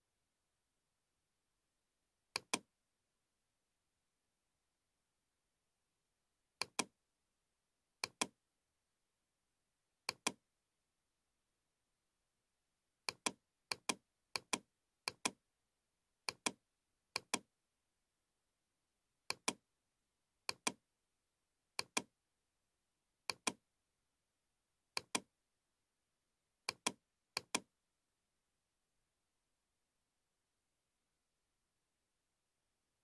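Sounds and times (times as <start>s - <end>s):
computer mouse clicking: 2.3s - 2.7s, 6.6s - 6.9s, 8.0s - 8.4s, 10.0s - 10.4s, 13.0s - 15.4s, 16.2s - 17.5s, 19.3s - 19.6s, 20.5s - 20.8s, 21.8s - 22.1s, 23.3s - 23.6s, 24.9s - 25.3s, 26.6s - 27.7s.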